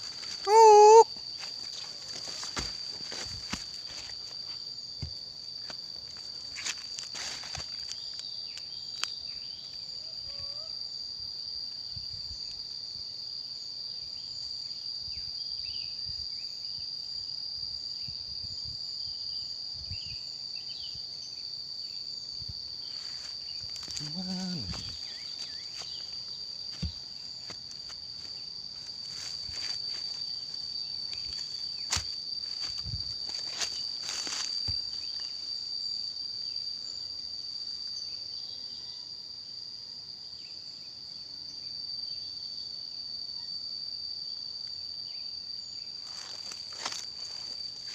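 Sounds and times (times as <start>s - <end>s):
insects shrilling: 0.0s - 4.6s, 22.8s - 35.7s, 45.4s - 47.9s
footsteps through undergrowth: 1.3s - 8.3s, 22.9s - 35.4s, 46.0s - 47.9s.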